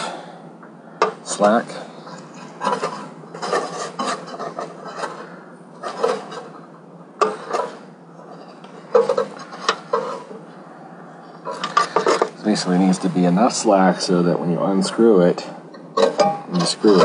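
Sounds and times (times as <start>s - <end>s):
wires rubbing on sheet metal: 1.3s - 10.5s.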